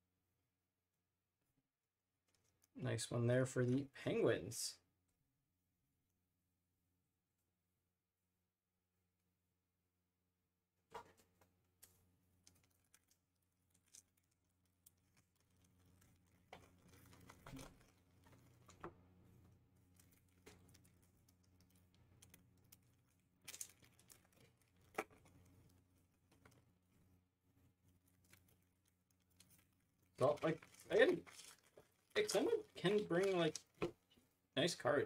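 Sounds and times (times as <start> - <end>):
foil wrappers crinkling: 12.4 - 18.8, 19.8 - 25.8, 28.1 - 33.8.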